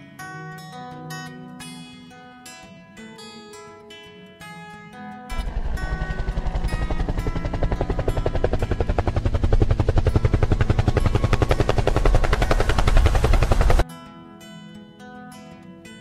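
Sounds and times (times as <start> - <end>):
helicopter rotor beating: 5.3 - 13.8.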